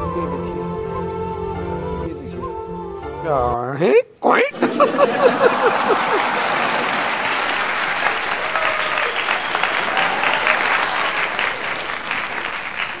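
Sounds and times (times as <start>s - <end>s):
crowd applause: 4.6s - 13.0s.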